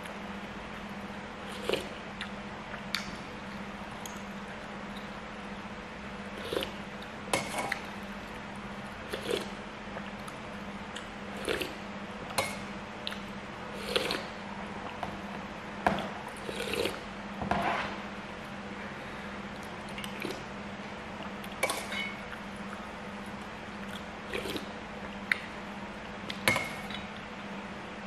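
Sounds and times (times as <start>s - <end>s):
slurping broth: 9.1s - 9.6s, 13.7s - 14.4s, 16.4s - 17.0s, 23.9s - 24.7s.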